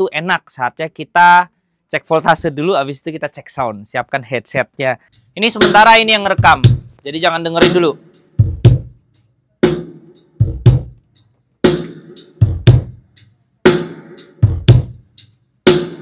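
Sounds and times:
bass drum and snare hits: 9.6s - 10.9s.

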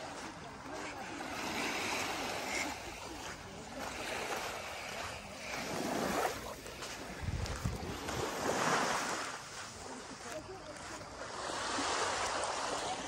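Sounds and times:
waves lapping on sand: 0.0s - 13.0s
wind rumble on microphone: 6.9s - 9.1s.

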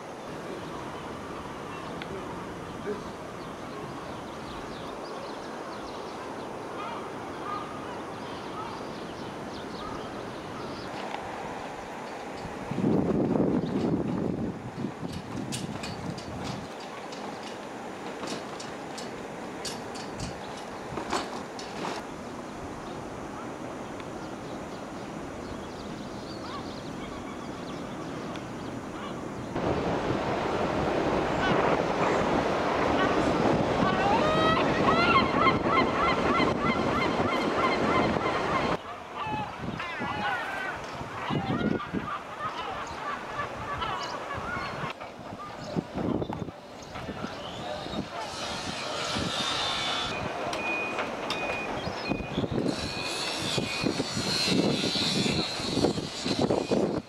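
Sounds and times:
steady background noise: 0.0s - 57.0s
surf rushing: 0.0s - 57.0s
wind: 0.0s - 57.0s
birds calling and chirping: 0.1s - 12.6s, 23.8s - 29.6s, 34.0s - 57.0s
faint bird calls: 1.7s - 11.0s, 25.4s - 29.5s.

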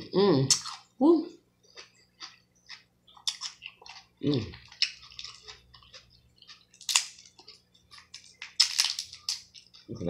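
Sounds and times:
chewing and picking at crab: 1.6s - 10.0s
sharp crab shell cracks: 6.9s - 7.2s, 8.5s - 9.5s.

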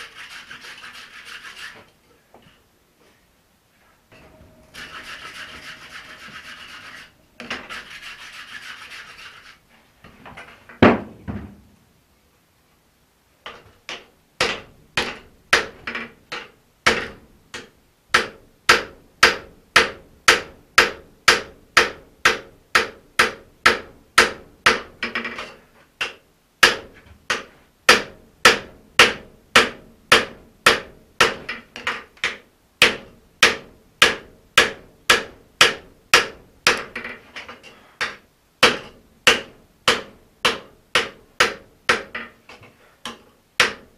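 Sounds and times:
scratchy rubbing noise: 0.0s - 1.9s, 4.6s - 9.8s.

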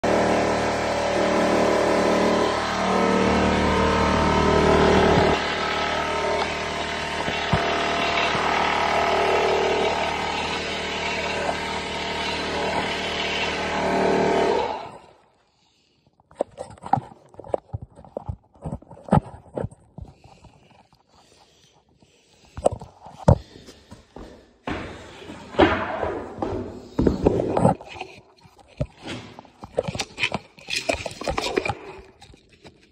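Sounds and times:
air compressor humming: 0.0s - 15.1s
boot footsteps on hardwood floor: 23.4s - 27.7s.

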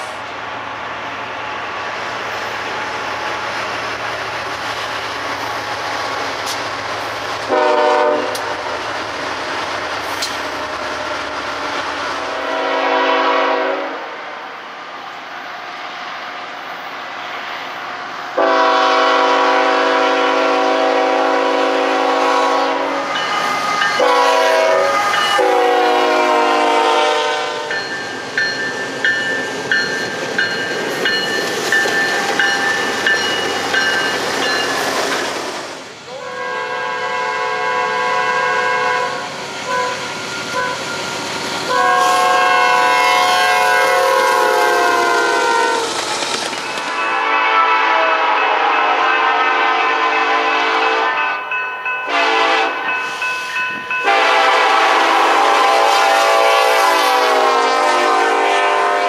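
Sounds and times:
freight train rolling rumble: 0.0s - 59.0s
train air horn blasts: 7.4s - 8.6s, 12.2s - 14.3s, 18.4s - 23.2s, 23.8s - 27.9s, 36.1s - 40.8s, 41.7s - 45.9s, 47.0s - 51.5s, 52.1s - 53.2s, 54.0s - 59.0s
crossing bell ringing: 23.0s - 26.0s, 27.5s - 34.9s, 51.0s - 54.7s.

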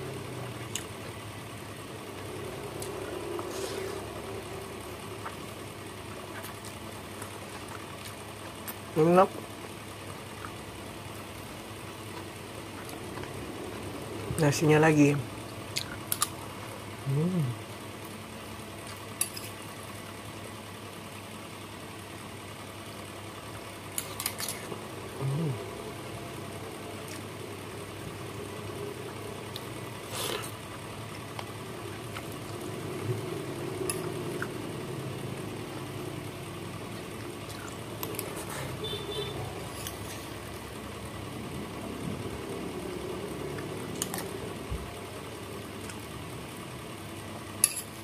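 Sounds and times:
person humming: 17.0s - 17.6s, 25.1s - 25.9s.

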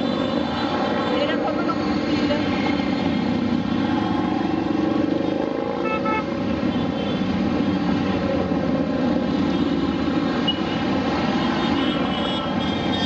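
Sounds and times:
motorcycle engines droning: 0.0s - 13.0s.

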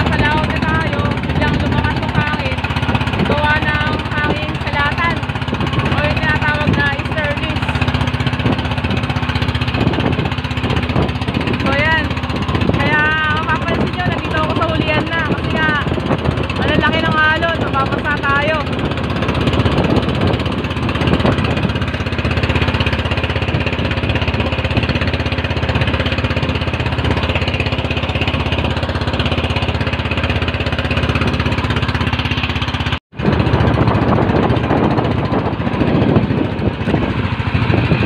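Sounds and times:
sea noise: 0.0s - 38.0s
small boat engine running: 0.0s - 38.0s
wind: 0.0s - 38.0s.

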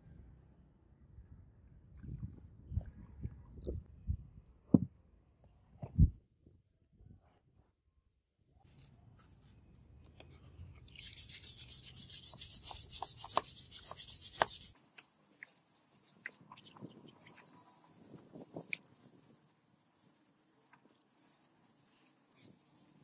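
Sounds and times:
wire brush scrubbing metal: 10.9s - 16.3s.

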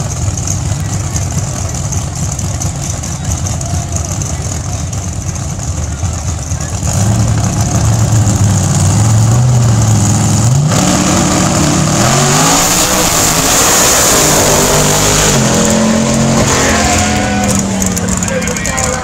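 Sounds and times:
drag car engine at full throttle: 0.0s - 19.0s.

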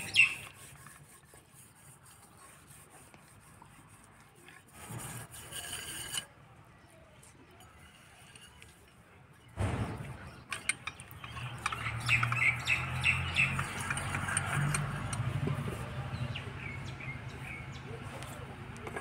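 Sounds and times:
small birds chirping: 0.0s - 0.6s, 9.4s - 14.8s, 15.8s - 18.6s.

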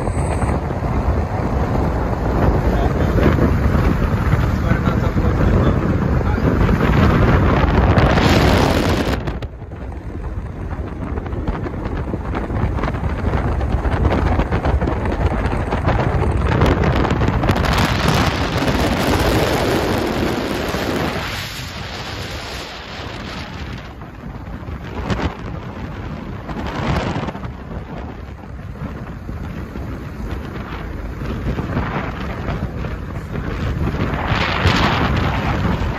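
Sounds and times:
road noise: 0.0s - 35.9s
wind buffeting microphone: 0.0s - 35.9s.

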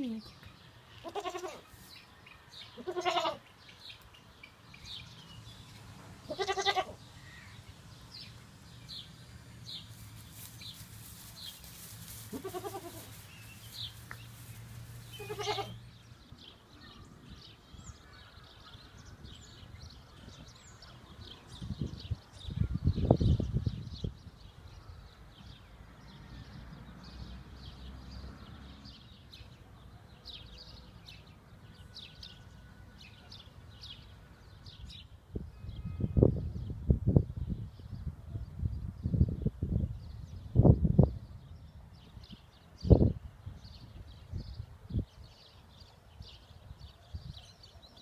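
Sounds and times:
small birds chirping: 0.0s - 26.2s
goat bleating: 1.0s - 1.7s, 2.8s - 3.4s, 6.3s - 7.0s, 12.3s - 13.2s, 15.1s - 15.8s.

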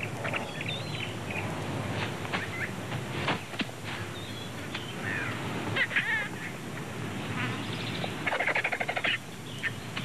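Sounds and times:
harsh chattering bird calls: 0.0s - 1.5s, 4.2s - 6.6s, 7.3s - 10.0s
vultures and storks squabbling: 8.2s - 9.8s.

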